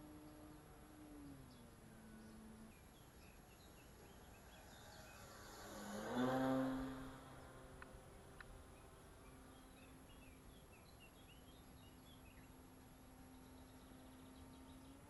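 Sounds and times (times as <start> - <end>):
model plane motor humming: 0.0 - 10.7.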